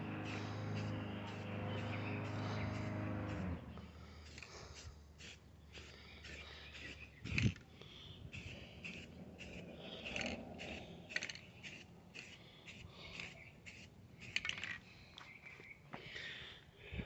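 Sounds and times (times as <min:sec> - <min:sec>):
spray paint can hissing: 0:00.0 - 0:03.4, 0:04.2 - 0:07.6, 0:08.3 - 0:14.7.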